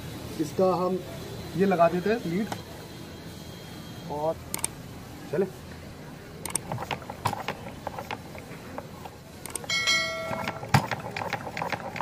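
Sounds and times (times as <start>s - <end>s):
engine turned over by hand: 6.5s - 12.0s
short metallic ring: 9.7s - 10.6s
engine running with rapid ticking: 10.2s - 12.0s.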